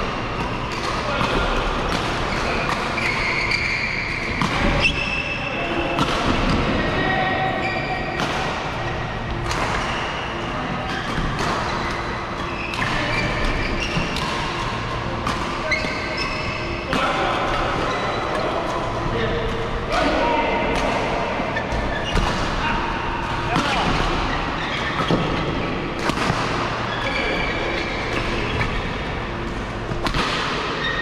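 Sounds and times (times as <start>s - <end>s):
rackets hitting shuttlecock: 9.4s - 17.2s, 23.2s - 27.2s, 27.8s - 31.0s
shoes squeaking on court: 15.6s - 16.8s.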